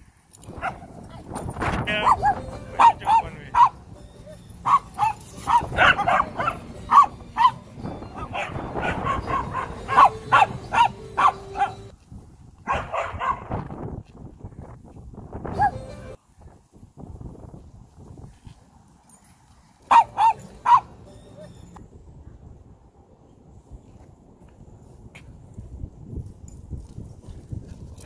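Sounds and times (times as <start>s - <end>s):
small dog yapping: 4.7s - 7.6s, 19.9s - 20.8s.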